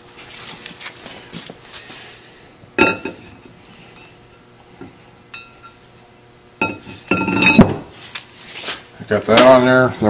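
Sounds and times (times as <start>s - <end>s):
metal cover clinking: 6.6s - 7.7s.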